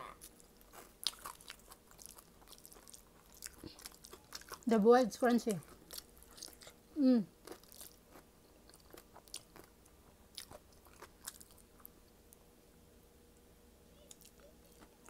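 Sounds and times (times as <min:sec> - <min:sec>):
person chewing: 0:00.0 - 0:04.7, 0:05.6 - 0:12.0.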